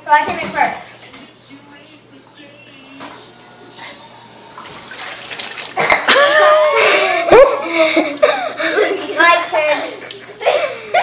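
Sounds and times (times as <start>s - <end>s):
water sloshing in metal tub: 4.6s - 6.1s.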